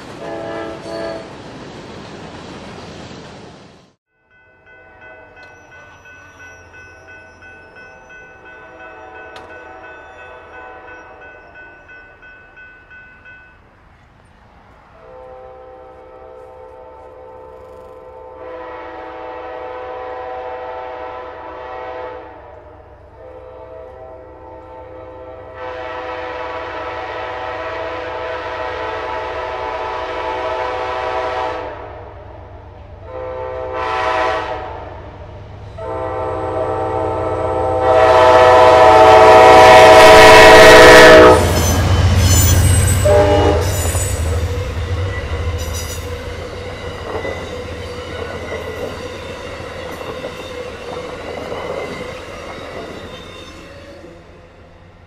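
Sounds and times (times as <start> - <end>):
train rushing by: 0.0 - 55.0
train horn blasts: 0.1 - 1.3, 7.0 - 11.4, 15.0 - 32.2, 33.0 - 35.1, 35.8 - 50.0
high-pitched wheel squeals: 41.4 - 44.4.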